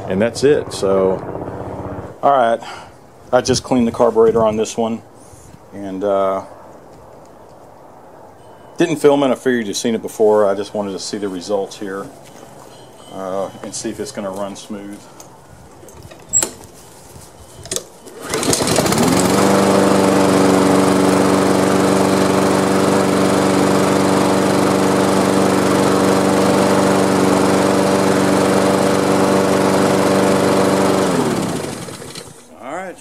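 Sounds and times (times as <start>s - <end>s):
lawn mower engine running: 0.0s - 2.2s, 17.7s - 32.5s.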